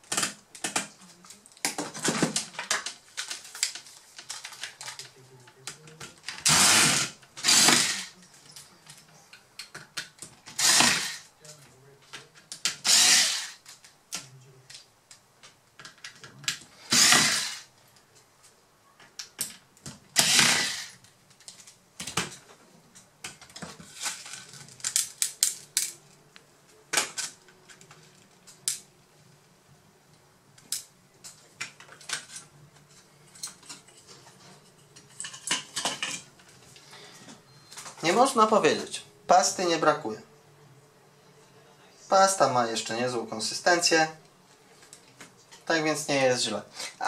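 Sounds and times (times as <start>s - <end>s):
electric screwdriver whirring: 6.4s - 8.1s, 10.5s - 11.2s, 12.8s - 13.6s, 16.9s - 17.7s, 20.2s - 21.0s.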